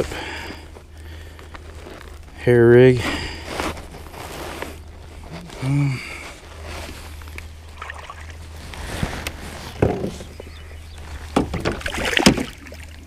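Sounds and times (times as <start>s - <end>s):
water sloshing: 7.1s - 8.8s, 11.1s - 13.0s.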